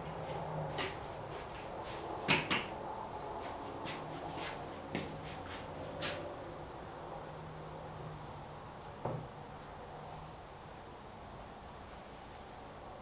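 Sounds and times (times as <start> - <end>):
knocks of tools and lumber: 2.2 - 2.7.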